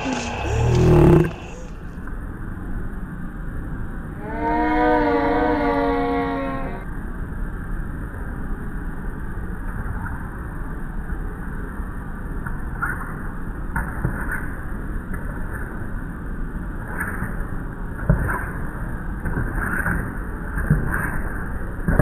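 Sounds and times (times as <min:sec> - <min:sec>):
low outdoor rumble: 0:00.0 - 0:13.7.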